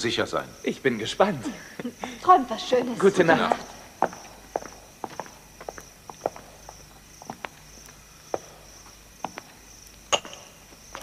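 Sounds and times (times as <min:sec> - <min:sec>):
soft footsteps: 0:03.2 - 0:11.0.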